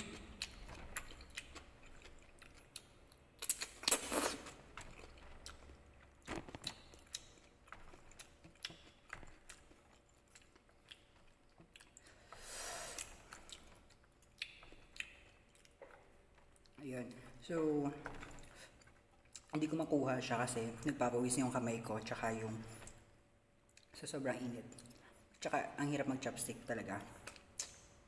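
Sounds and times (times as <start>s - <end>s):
chewing: 0.0s - 17.4s, 18.0s - 19.7s.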